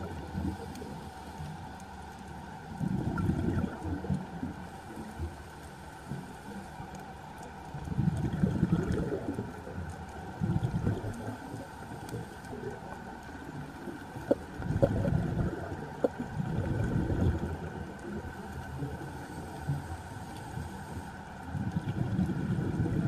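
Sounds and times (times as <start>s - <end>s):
underwater hum: 0.0s - 23.0s
bubbles gurgling underwater: 2.8s - 4.5s, 7.7s - 19.4s, 21.5s - 23.0s.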